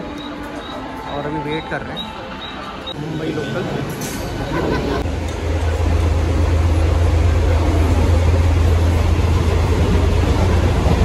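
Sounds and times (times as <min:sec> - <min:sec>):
train rumbling inside carriage: 0:02.4 - 0:11.0.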